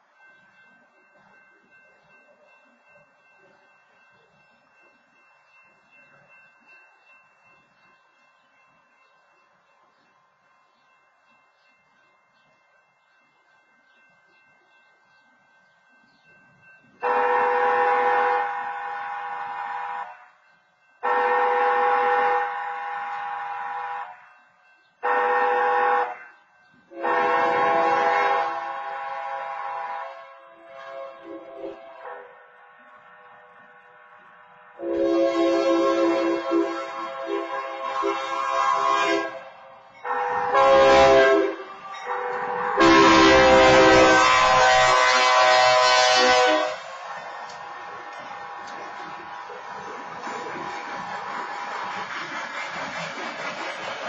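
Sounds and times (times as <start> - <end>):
train horn blasts: 17.0 - 20.4, 21.0 - 24.3, 25.0 - 26.3, 26.9 - 49.9.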